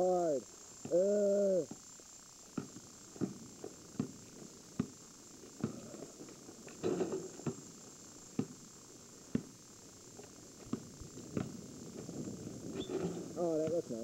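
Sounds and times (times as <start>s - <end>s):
basketball bouncing on pavement: 2.5s - 5.0s, 5.6s - 6.0s, 6.8s - 7.7s, 8.3s - 8.6s, 9.3s - 9.6s, 10.6s - 12.2s.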